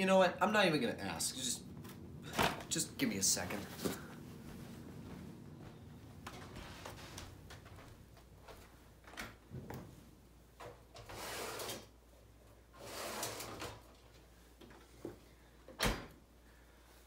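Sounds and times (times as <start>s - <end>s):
dishwasher rack rolling: 12.8s - 13.8s.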